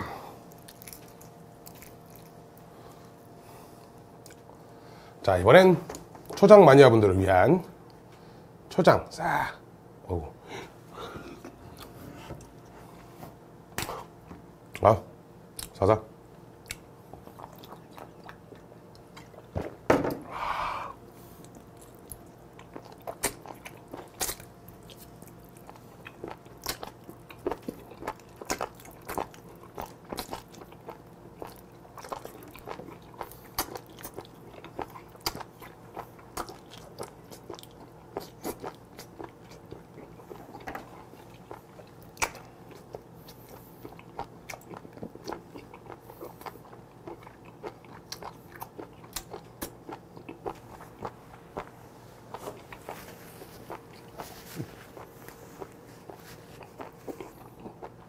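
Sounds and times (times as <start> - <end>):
wet chewing and mouth clicks: 0.5 - 2.7, 16.6 - 19.5, 21.4 - 58.0.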